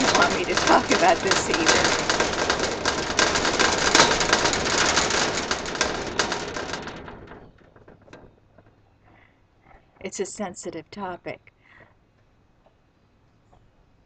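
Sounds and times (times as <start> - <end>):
rattling of wire-mesh pen: 0.0 - 8.8.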